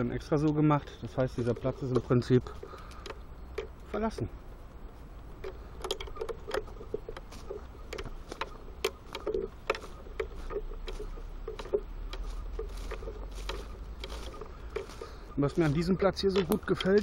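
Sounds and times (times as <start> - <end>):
low steady rumble: 0.0 - 16.8
footsteps crunching through dry leaves: 6.6 - 17.0.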